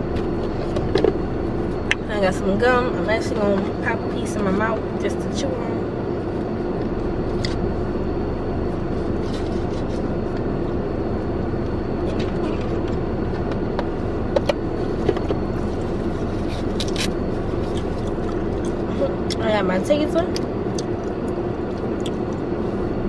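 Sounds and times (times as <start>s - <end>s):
car hum inside cabin: 0.0s - 23.0s.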